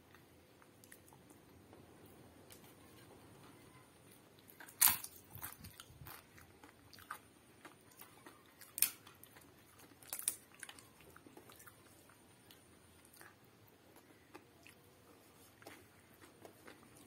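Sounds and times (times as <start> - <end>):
crunchy wafer chewing: 4.4 - 17.0.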